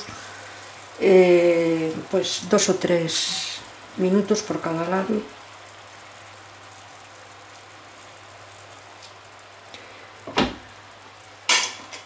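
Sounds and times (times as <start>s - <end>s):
fish sizzling in a frying pan: 0.0s - 12.0s.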